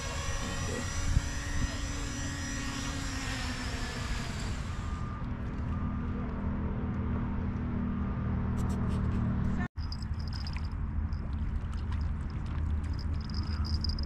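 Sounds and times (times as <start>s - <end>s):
drone propellers whining: 0.0s - 6.6s.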